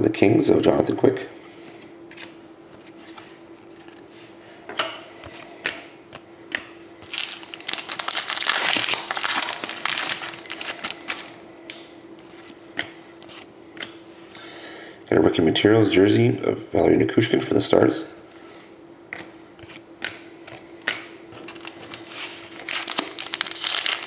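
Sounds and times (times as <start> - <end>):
foil wrapper crinkling: 7.0 - 11.4, 21.4 - 24.0.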